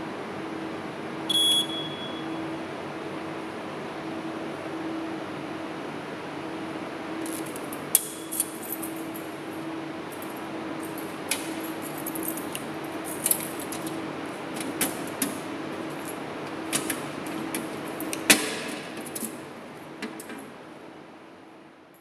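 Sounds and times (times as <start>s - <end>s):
faint steady hum: 0.0s - 14.5s
keys jangling against metal: 7.2s - 14.0s, 15.8s - 19.4s.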